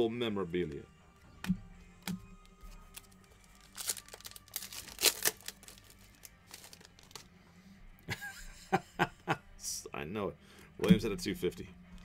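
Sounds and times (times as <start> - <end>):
foil wrapper crinkling and tearing: 2.6 - 7.3.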